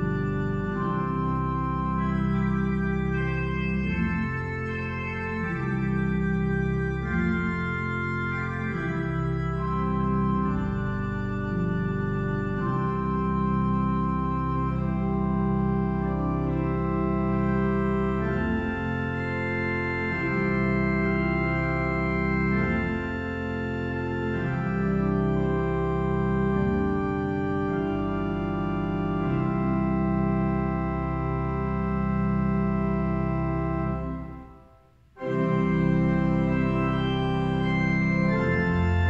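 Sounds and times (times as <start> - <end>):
pipe organ playing chords: 0.0 - 39.0.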